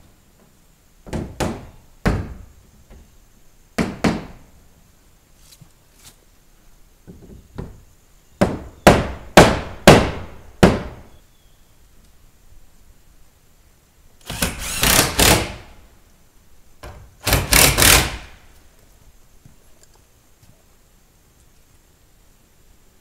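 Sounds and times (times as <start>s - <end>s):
hammer striking wood: 1.1s - 2.4s, 3.8s - 4.4s, 8.4s - 11.1s.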